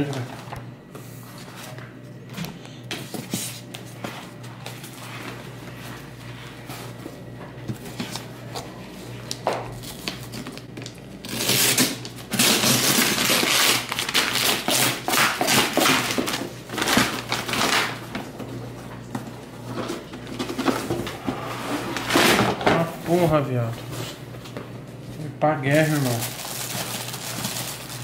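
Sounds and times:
paper and plastic ripping: 0:09.3 - 0:18.0, 0:25.7 - 0:28.0.

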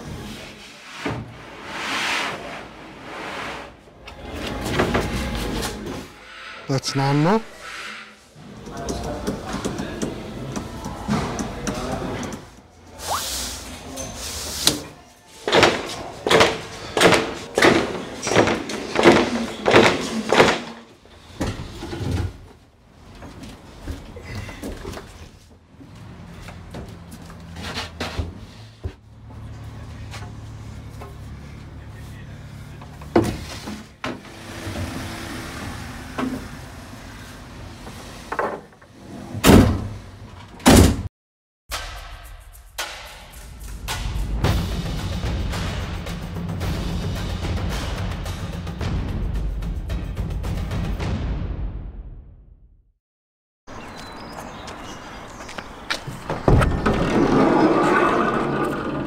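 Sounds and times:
background music with steady beat: 0:41.7 - 0:51.8.

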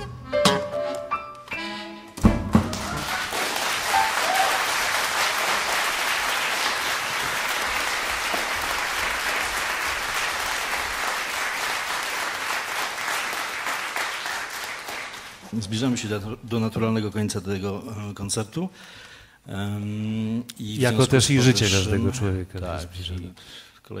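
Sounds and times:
audience applauding: 0:02.6 - 0:15.5.

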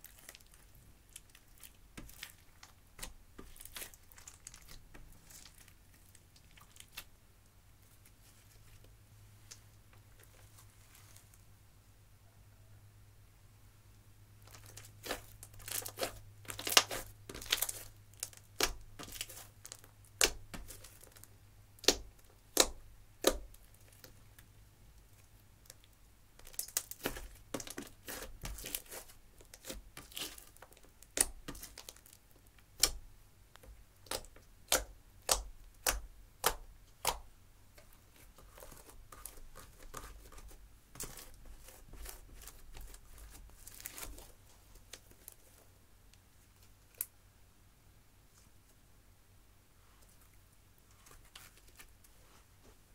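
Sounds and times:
slime crackling: 0:00.0 - 0:07.1, 0:14.4 - 0:24.2, 0:25.6 - 0:45.6.

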